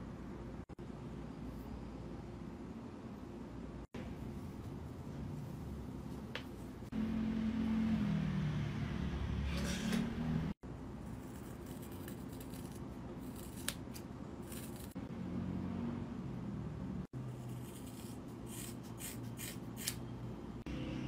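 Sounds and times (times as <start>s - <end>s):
scissors snipping hair: 17.6s - 20.0s.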